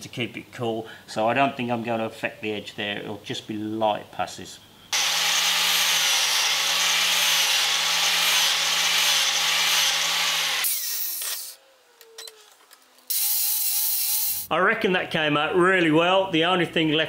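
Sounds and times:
angle grinder grinding steel: 5.0s - 11.6s, 13.1s - 14.5s
grinder winding down whine: 5.0s - 11.6s.

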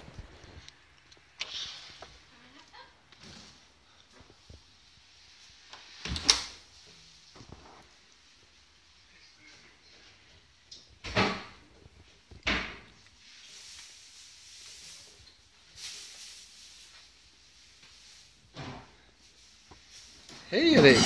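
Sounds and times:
soft rustling: 12.9s - 21.0s.

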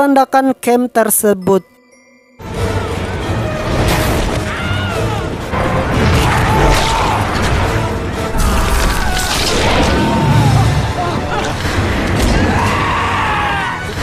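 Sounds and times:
film music score: 0.0s - 14.0s
booming crashes and impacts: 3.4s - 13.1s.

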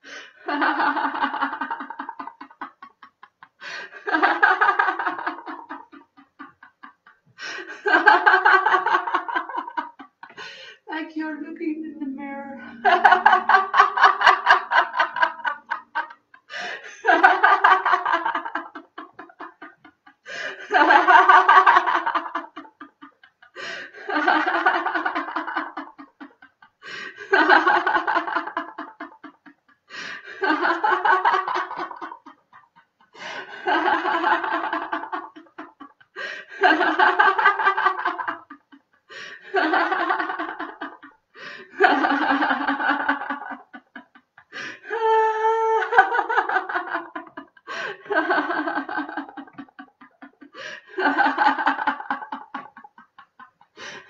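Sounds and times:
woman breathing: 0.0s - 0.5s, 3.6s - 4.1s, 7.2s - 7.9s, 10.3s - 10.9s, 16.5s - 17.1s, 20.2s - 20.8s, 23.5s - 24.1s, 26.8s - 27.3s, 29.8s - 30.4s, 33.1s - 33.7s, 36.1s - 36.6s, 39.1s - 39.6s, 41.3s - 41.8s, 44.4s - 45.0s, 47.6s - 48.1s, 50.5s - 51.0s, 53.7s - 54.0s
woman laughing out loud: 12.4s - 26.6s.

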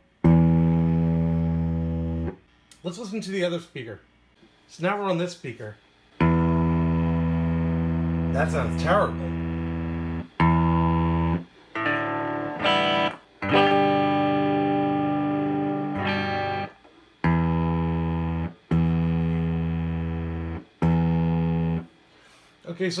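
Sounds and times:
distorted electric guitar notes: 0.0s - 2.4s, 6.2s - 21.9s.

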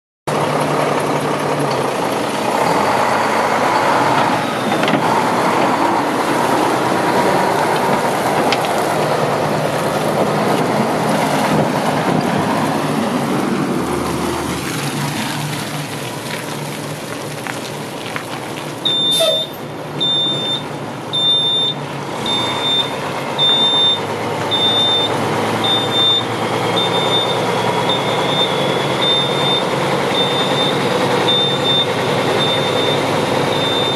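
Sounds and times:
diesel truck engine running: 0.3s - 33.9s
backup alarm beeping: 18.9s - 33.9s.

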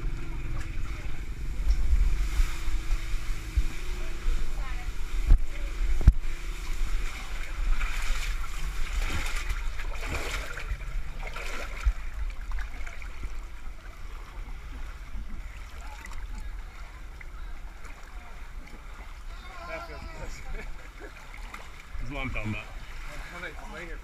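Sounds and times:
muddy water splashing: 0.0s - 24.0s.

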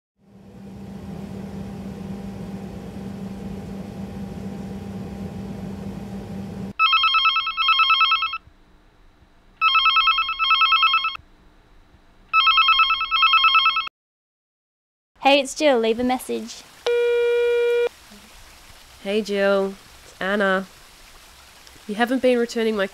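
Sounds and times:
steady low hum: 0.2s - 6.8s, 8.4s - 9.6s, 11.2s - 12.3s
telephone ringing: 6.8s - 8.4s, 9.6s - 11.2s, 12.4s - 13.9s, 16.9s - 17.9s.

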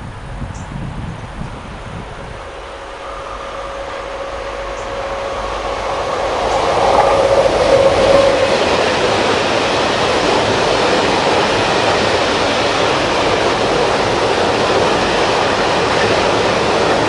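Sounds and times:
electric locomotive whine: 0.0s - 17.0s.

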